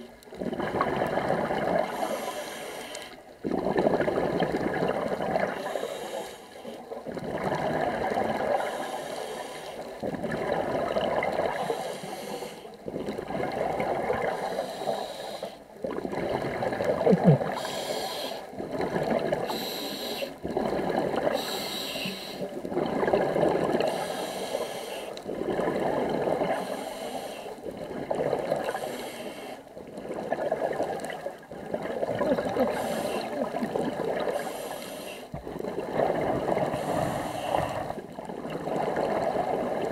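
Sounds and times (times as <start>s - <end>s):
exhalation bubbles: 0.0s - 1.9s, 3.4s - 5.6s, 7.0s - 8.6s, 15.8s - 17.7s, 18.6s - 19.6s, 20.4s - 21.5s, 22.5s - 24.0s, 30.0s - 34.4s
diver breathing through regulator: 1.8s - 3.2s, 5.5s - 6.8s, 8.5s - 9.9s, 11.5s - 12.8s, 14.2s - 15.6s, 17.3s - 18.6s, 19.3s - 20.4s, 21.2s - 22.6s, 23.7s - 25.2s, 26.4s - 27.6s, 28.6s - 29.7s, 32.6s - 33.4s, 34.2s - 35.4s, 36.6s - 38.0s.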